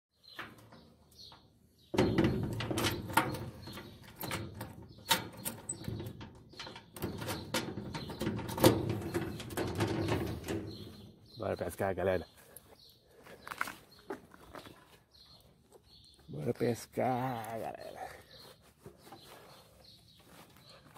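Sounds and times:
irregular knocks and rustling: 0:00.2 - 0:11.4, 0:18.3 - 0:20.9.

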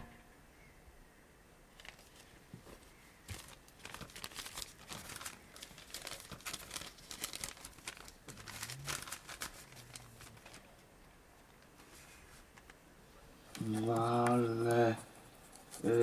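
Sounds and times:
paper crumpling: 0:01.7 - 0:10.9.

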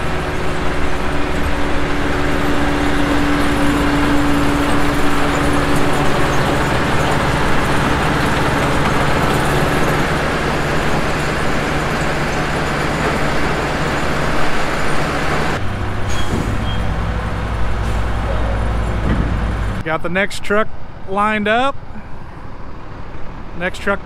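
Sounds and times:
diesel engine drone: 0:00.0 - 0:24.0
almonds rushing up conveyor: 0:02.1 - 0:15.4.

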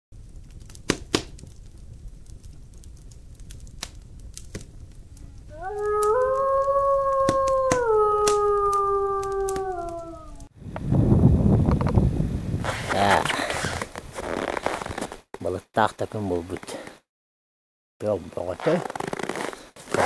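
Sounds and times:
wolf howling: 0:05.5 - 0:10.5.

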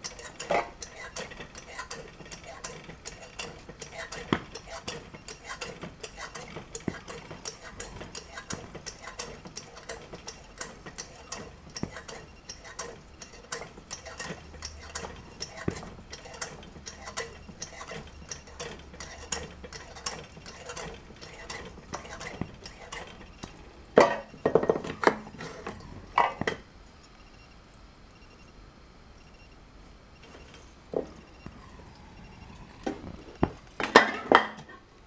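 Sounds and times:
hand air pump clicking: 0:00.0 - 0:23.6.

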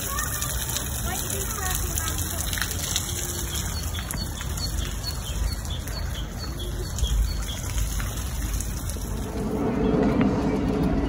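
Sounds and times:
fountain water rushing and trickling: 0:00.0 - 0:11.0
small birds chirping: 0:00.1 - 0:09.0
low rumble: 0:08.4 - 0:11.0.

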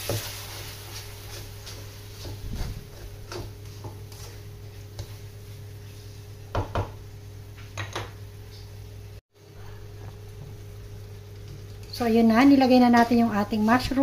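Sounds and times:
spatula scraping a wok: 0:00.0 - 0:06.4.

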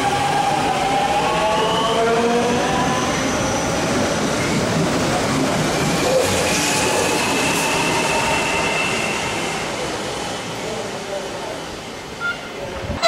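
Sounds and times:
high train whine: 0:00.0 - 0:13.0.

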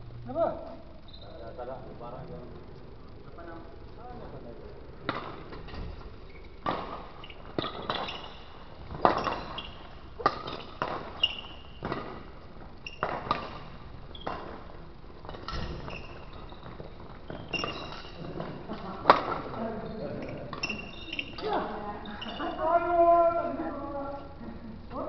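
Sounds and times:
shoes squeaking on floor: 0:01.0 - 0:01.4, 0:05.7 - 0:18.4, 0:19.1 - 0:22.7
rackets hitting shuttlecock: 0:05.1 - 0:05.8, 0:06.6 - 0:19.6.

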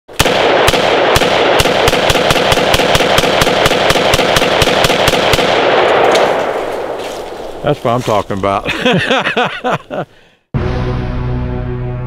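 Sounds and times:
rifle firing rapidly: 0:00.1 - 0:06.4.

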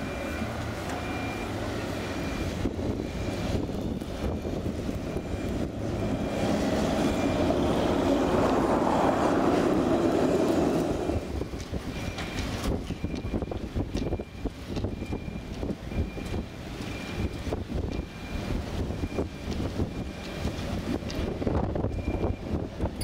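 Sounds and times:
tram passing: 0:00.0 - 0:11.7.

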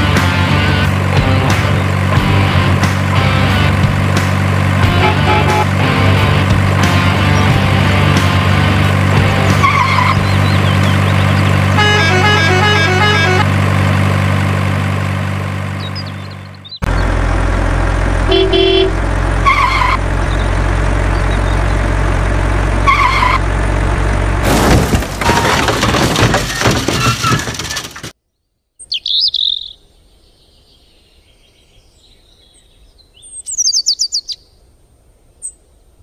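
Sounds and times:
truck engine droning: 0:00.0 - 0:28.1
birds chirping: 0:06.6 - 0:08.0, 0:09.3 - 0:13.4, 0:15.6 - 0:17.2, 0:18.3 - 0:21.9, 0:28.3 - 0:36.0
harsh crashing and crumbling: 0:24.3 - 0:28.2.

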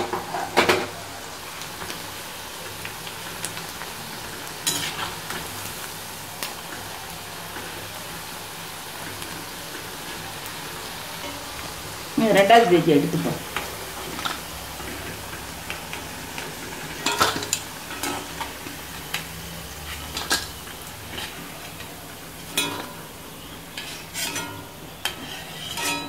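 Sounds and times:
oil sizzling in a pan: 0:00.0 - 0:26.0
skimmer clinking and scraping: 0:23.8 - 0:26.0.

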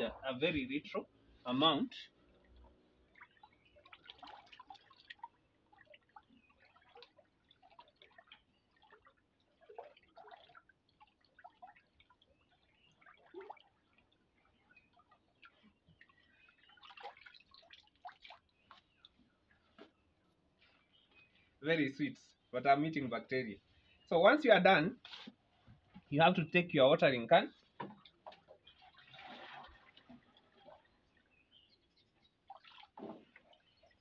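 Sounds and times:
drips from wet hand: 0:02.6 - 0:19.2, 0:32.5 - 0:34.0.

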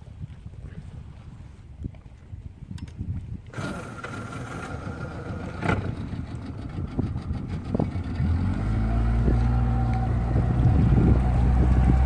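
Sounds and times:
boat engine running: 0:03.5 - 0:12.0.

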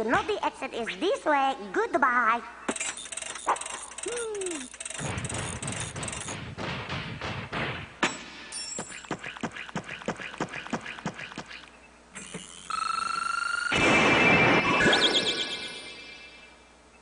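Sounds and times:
high electronic tone: 0:02.7 - 0:06.3, 0:12.2 - 0:16.5
cartoon tiptoeing footsteps: 0:02.7 - 0:07.8, 0:08.7 - 0:12.7.

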